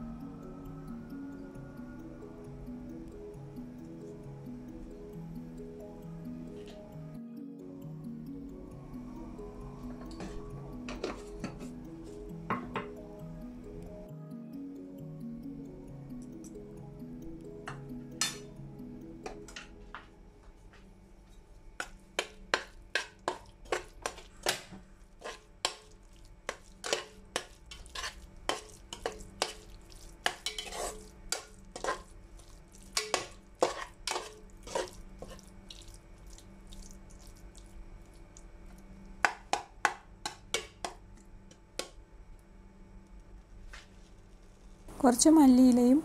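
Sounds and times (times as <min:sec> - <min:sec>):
metal spoon scraping cooker: 0:26.8 - 0:29.6, 0:30.2 - 0:32.0, 0:33.0 - 0:35.4.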